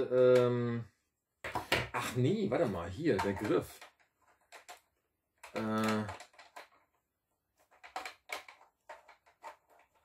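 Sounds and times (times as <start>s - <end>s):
plastic toy parts clicking: 2.6s - 7.0s, 7.6s - 10.0s.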